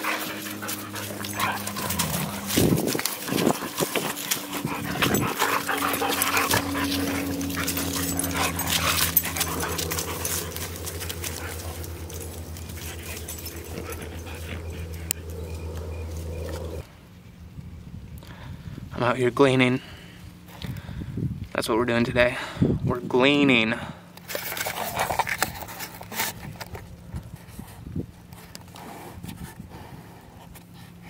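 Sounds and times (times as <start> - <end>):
dogs scuffling: 0.0 - 16.8
dogs whimpering and yipping: 0.0 - 16.8
steady low drone: 0.0 - 19.1.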